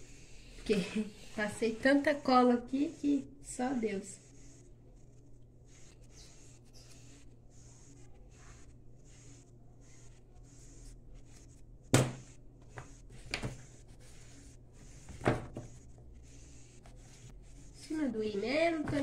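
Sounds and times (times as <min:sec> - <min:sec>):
glue stick rubbing on paper: 0:02.0 - 0:11.6.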